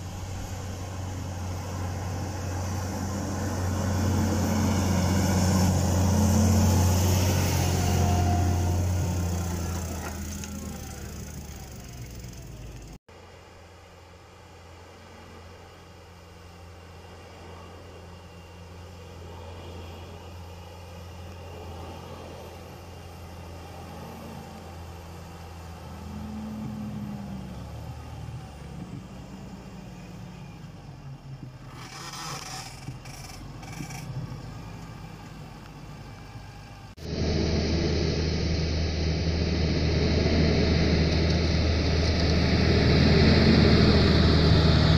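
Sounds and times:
tractor diesel engine under load: 0:00.0 - 0:44.9
plough scraping soil: 0:31.6 - 0:34.4.

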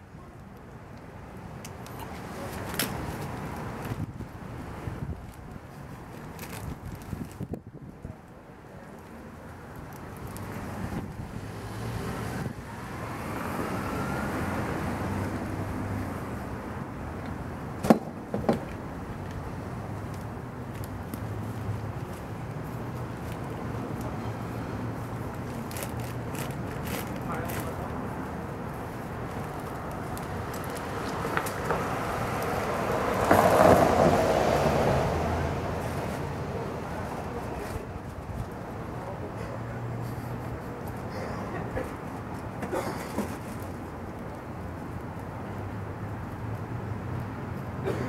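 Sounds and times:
light wind: 0:00.0 - 0:48.0
car passing: 0:10.4 - 0:17.1, 0:21.2 - 0:37.9
car driving past: 0:11.4 - 0:16.3.

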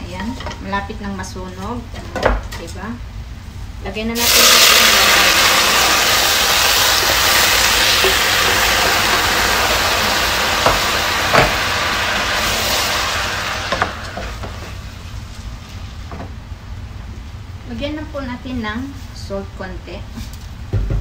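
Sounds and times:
rice sizzling in a pot: 0:04.2 - 0:15.8.

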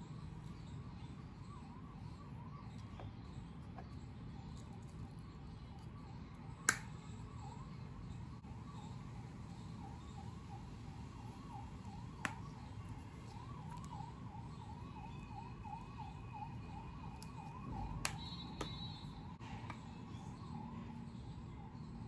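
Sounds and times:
faint siren yelping: 0:00.1 - 0:22.0.

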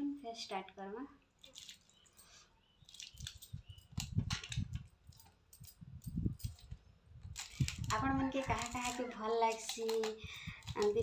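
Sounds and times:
wet squelches and chewing: 0:01.3 - 0:05.3
bangles clinking: 0:01.5 - 0:11.0.

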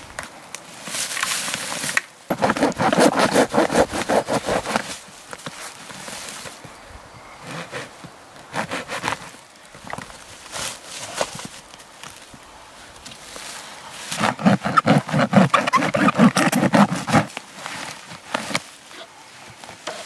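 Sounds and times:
hand saw cutting log: 0:02.3 - 0:05.0, 0:07.4 - 0:09.4, 0:14.0 - 0:18.6.

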